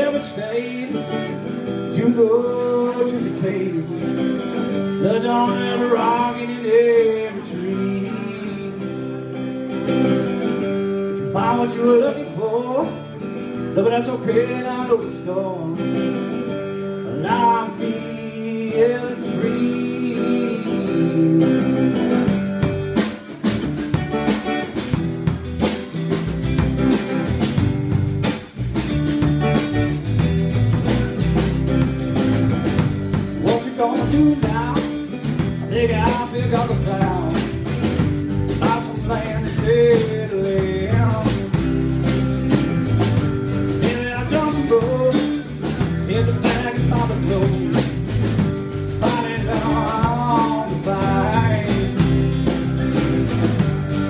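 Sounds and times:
acoustic guitars strumming: 0.0s - 54.0s
electric bass: 0.0s - 54.0s
drum kit beat: 19.6s - 54.0s.

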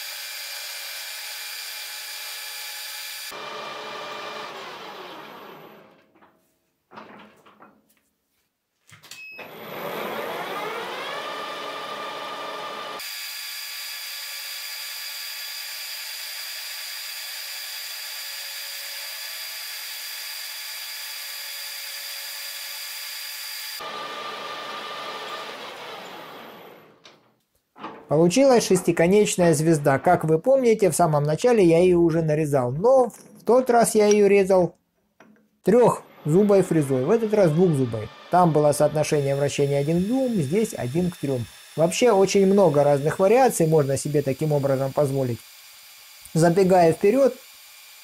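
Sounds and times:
cutter machining metal: 0.0s - 5.8s, 9.4s - 26.7s, 36.0s - 48.0s
metal lathe whining: 0.0s - 6.0s, 9.4s - 27.0s, 35.7s - 48.0s.

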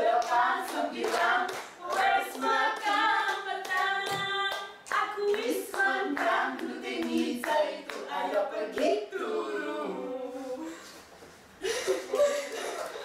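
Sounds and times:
group clapping along: 0.0s - 9.3s, 12.0s - 13.0s.

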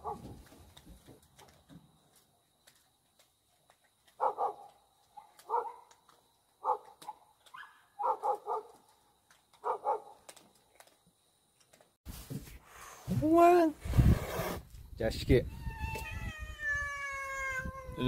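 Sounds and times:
dog barking: 0.0s - 0.3s, 4.2s - 5.9s, 6.6s - 8.8s, 9.6s - 10.2s.

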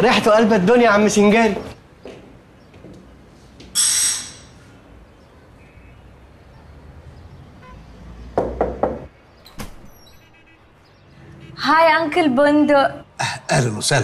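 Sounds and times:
knocking on wooden door: 8.4s - 9.1s.

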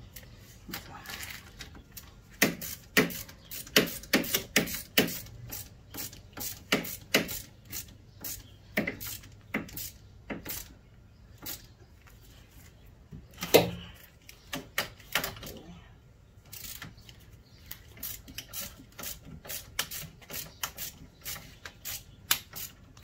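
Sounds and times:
ratchet wrench clicking: 16.5s - 16.8s.

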